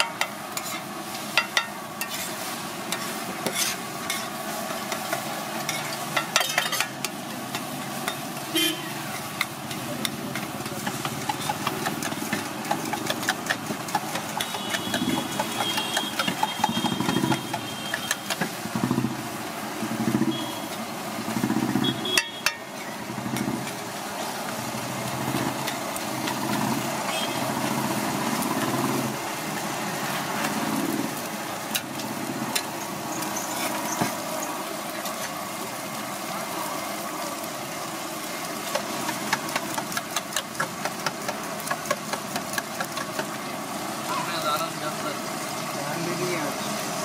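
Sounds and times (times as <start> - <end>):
metal spatula scraping griddle: 0.0 - 8.2
food sizzling: 0.0 - 47.0.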